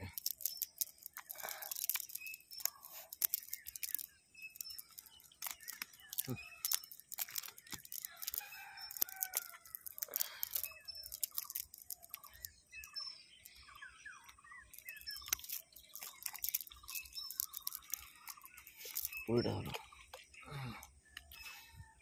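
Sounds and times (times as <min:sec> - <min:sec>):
wet nylon net rustling: 0:00.0 - 0:12.4.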